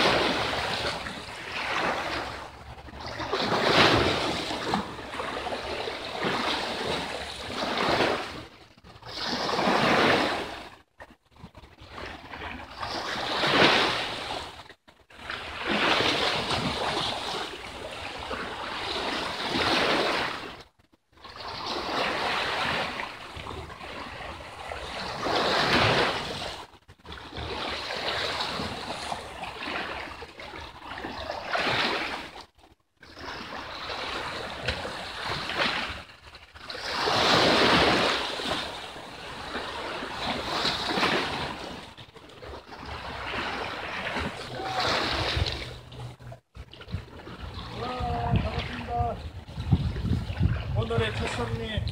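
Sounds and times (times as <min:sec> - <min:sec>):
waves washing over rocks: 0:00.0 - 0:10.8, 0:33.1 - 0:46.3, 0:47.0 - 0:51.9
wind on microphone: 0:42.7 - 0:51.9.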